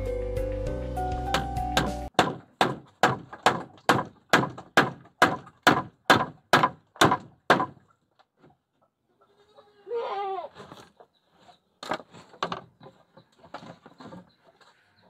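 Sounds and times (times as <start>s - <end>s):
sharp evenly spaced knocks: 1.3s - 7.8s.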